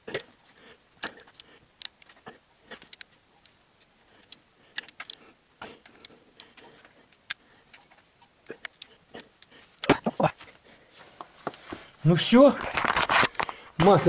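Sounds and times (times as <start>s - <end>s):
metallic clicks of hand tools: 4.2s - 5.2s.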